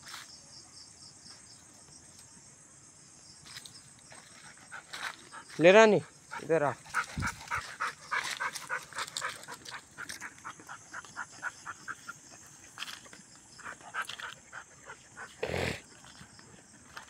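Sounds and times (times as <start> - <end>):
dog panting: 4.3 - 15.4.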